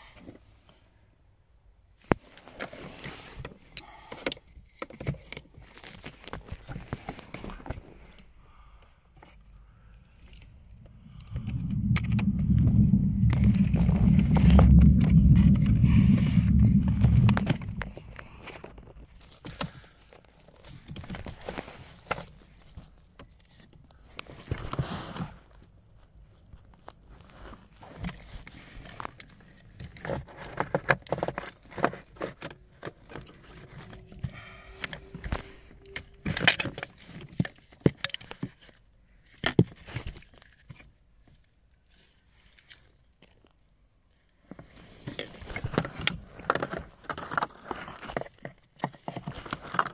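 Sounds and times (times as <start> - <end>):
loud low rumble: 10.5 - 18.6, 32.6 - 36.6.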